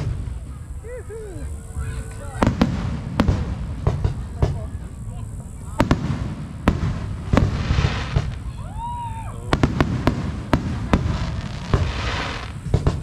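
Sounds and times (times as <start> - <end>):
firework bangs: 0.0 - 0.9, 1.8 - 13.0
firework crackling hiss: 0.0 - 13.0
firework whistle: 7.4 - 13.0.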